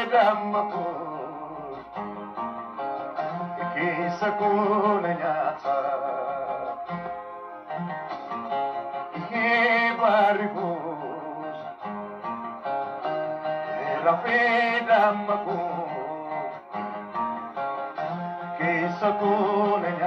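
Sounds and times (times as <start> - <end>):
man singing: 0.0 - 1.8, 3.3 - 6.8, 9.1 - 11.7, 13.7 - 16.6, 18.4 - 20.0
acoustic guitar picking: 0.0 - 20.0.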